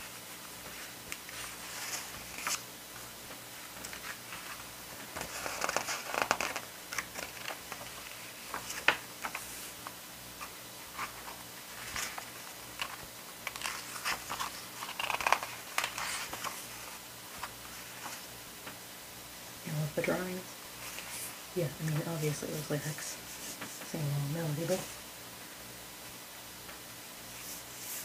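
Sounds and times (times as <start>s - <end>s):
paper pages turning: 0.6s - 2.6s, 3.3s - 18.3s, 20.8s - 21.4s.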